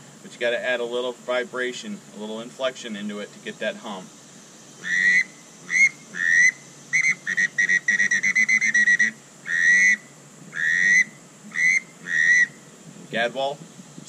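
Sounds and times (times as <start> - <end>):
buzzy duck call whistles: 4.8 - 12.6.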